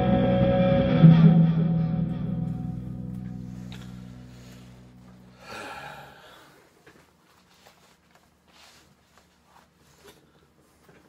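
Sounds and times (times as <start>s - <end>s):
electric guitar chord ringing: 0.0s - 6.0s
breathy exhale: 3.4s - 6.7s.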